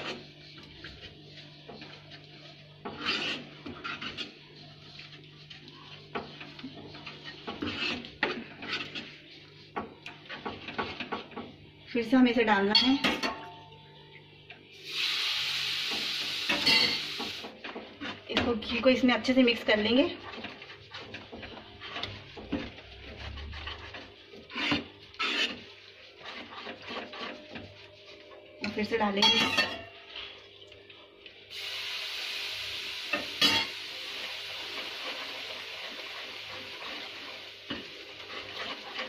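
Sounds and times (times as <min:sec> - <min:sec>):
spatula scraping pan: 0:00.0 - 0:11.4, 0:15.9 - 0:29.7, 0:34.5 - 0:39.0.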